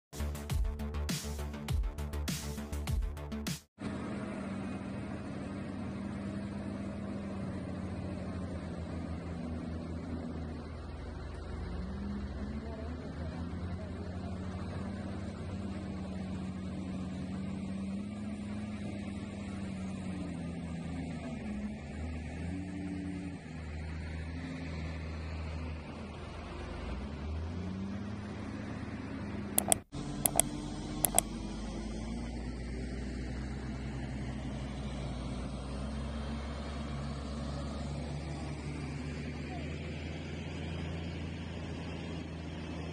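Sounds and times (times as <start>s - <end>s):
heavy diesel engine droning: 3.8s - 24.1s
button clicks: 29.6s - 31.3s.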